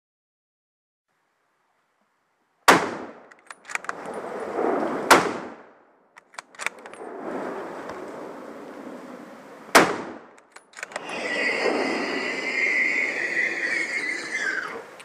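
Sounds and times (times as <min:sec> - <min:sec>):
gunshots with echo: 0:05.0 - 0:05.7, 0:09.7 - 0:10.3.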